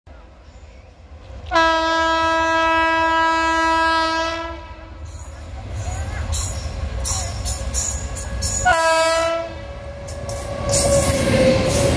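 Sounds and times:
locomotive air horn blast: 1.5 - 5.0, 8.6 - 9.6.

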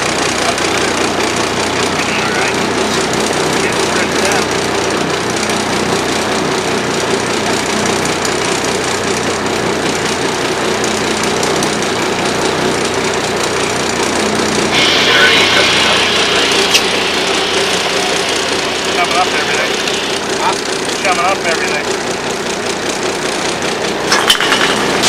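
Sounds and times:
boat engine idling: 0.0 - 25.0
loud high hiss: 14.6 - 20.8.

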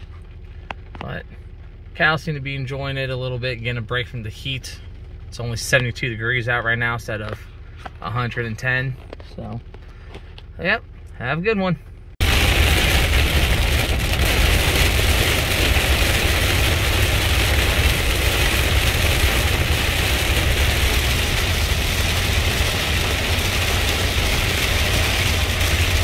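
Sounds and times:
rain hissing on roof: 12.2 - 26.0
vehicle rumble on wet road: 12.2 - 26.0.

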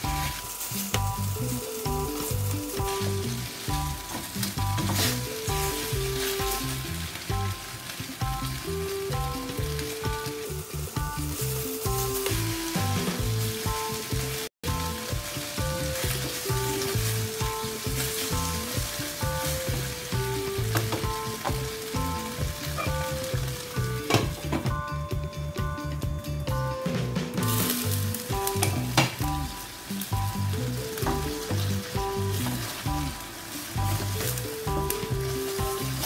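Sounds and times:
background music with bass beat: 0.0 - 36.0
food sizzling in a wok: 0.0 - 36.0.

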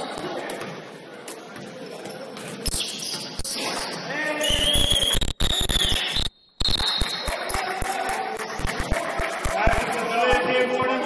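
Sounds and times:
sneakers squeaking: 0.0 - 4.8
players' voices: 7.0 - 11.0.

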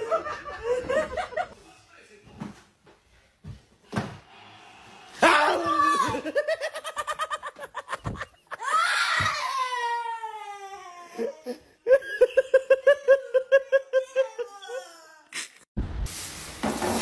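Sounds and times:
boy screaming: 5.2 - 6.4, 8.6 - 10.6
boy laughing rapidly: 5.2 - 9.1.

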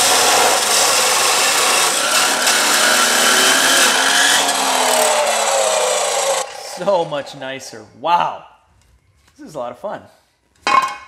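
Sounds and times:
abrasive saw cutting metal: 0.0 - 7.6.

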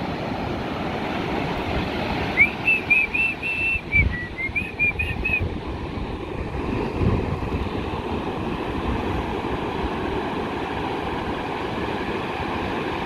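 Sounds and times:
low thuds of waves: 0.0 - 13.0
ocean surf washing up beach: 0.0 - 13.0.

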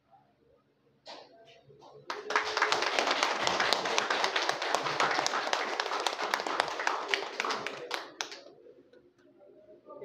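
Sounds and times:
audience applauding: 2.1 - 8.4.

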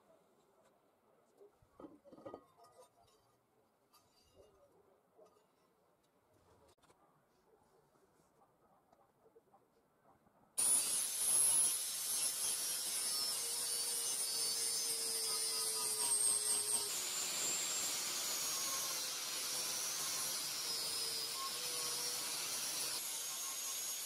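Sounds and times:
angle grinder grinding steel: 10.6 - 24.0.

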